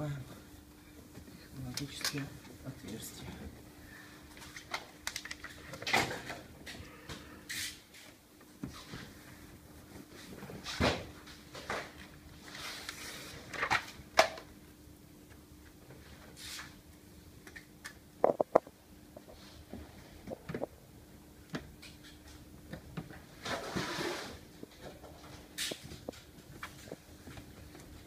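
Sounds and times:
sharp clicks and knocks: 17.5s - 18.7s.

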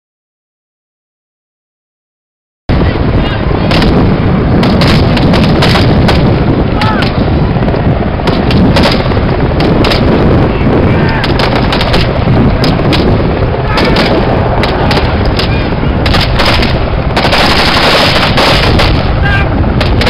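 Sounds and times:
steady low rumble: 2.7s - 20.0s
gunshots: 3.6s - 7.2s, 8.2s - 10.4s, 11.1s - 20.0s.

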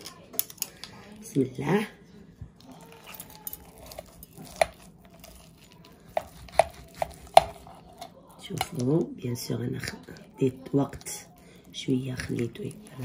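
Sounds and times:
knife and fork cutting chicken: 2.6s - 9.0s, 10.2s - 13.0s.

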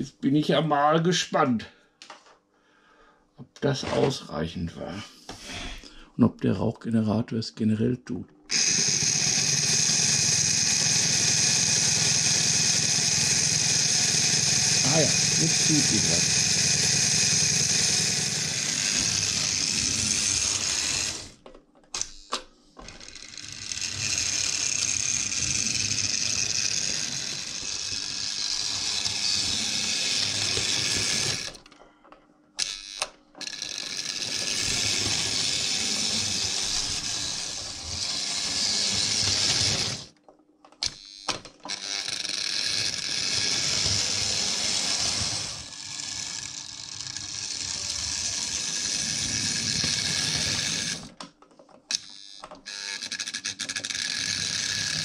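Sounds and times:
model locomotive motor whirring: 8.5s - 21.4s, 22.0s - 31.7s, 32.6s - 40.2s, 40.8s - 51.2s, 51.9s - 55.0s.

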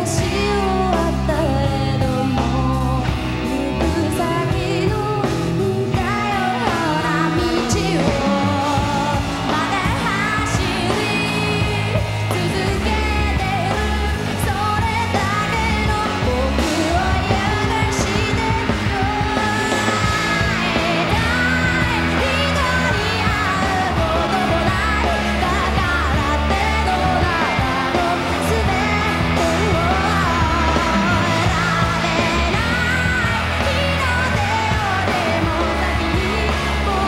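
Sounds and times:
live rock band playing: 0.0s - 37.0s
woman singing: 0.0s - 37.0s.

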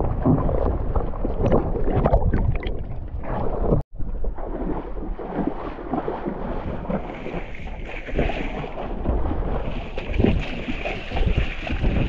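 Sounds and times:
feet splashing through water: 3.5s - 12.0s
wind buffeting microphone: 6.1s - 12.0s.

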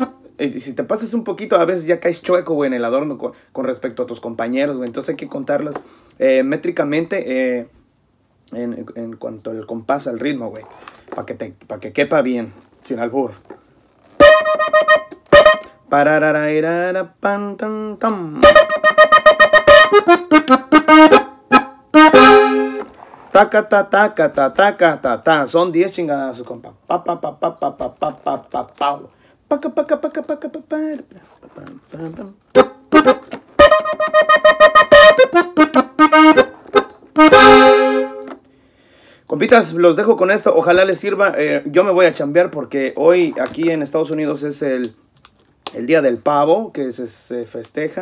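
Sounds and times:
button accordion playing: 14.2s - 15.8s, 18.4s - 23.6s, 32.5s - 38.5s.

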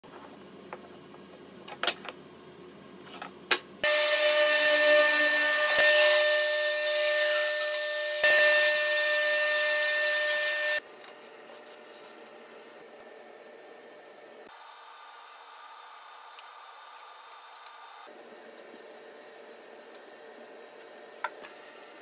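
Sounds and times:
table saw cutting wood: 3.8s - 10.8s.

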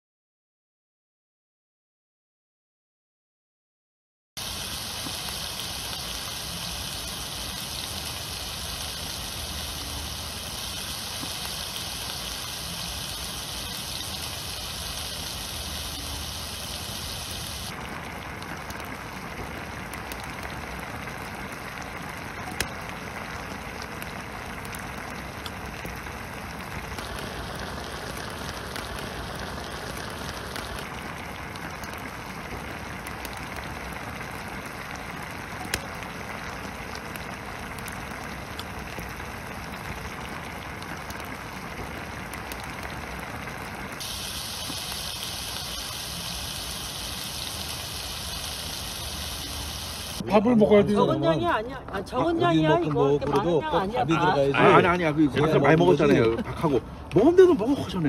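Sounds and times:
steady hiss: 4.4s - 18.2s, 25.3s - 33.9s, 41.6s - 50.2s
sharp crackle: 4.4s - 50.2s
stew bubbling and sizzling: 4.4s - 51.3s.

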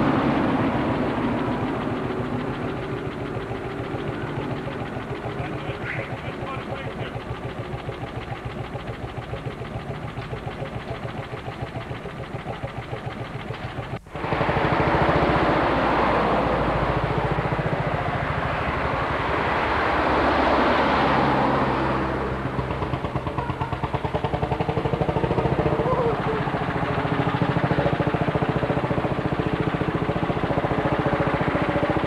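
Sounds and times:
tractor engine idling thuds: 0.0s - 15.2s, 22.4s - 32.0s
loud dense engine noise: 0.0s - 32.0s.

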